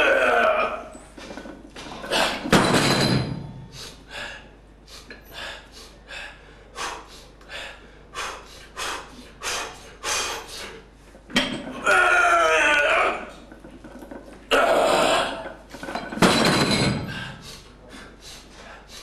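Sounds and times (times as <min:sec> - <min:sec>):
man breathing forcefully: 0:03.6 - 0:11.0, 0:16.7 - 0:19.0.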